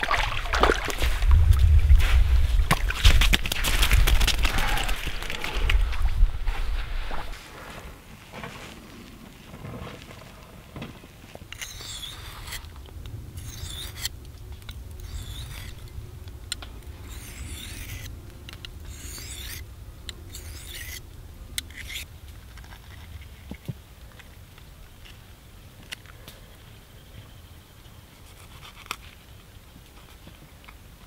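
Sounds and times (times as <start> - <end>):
knife rasping on sharpening stone: 11.6 - 12.6, 13.4 - 14.1, 15.0 - 15.8, 17.1 - 18.1, 18.9 - 19.6, 20.3 - 21.0, 21.7 - 22.0.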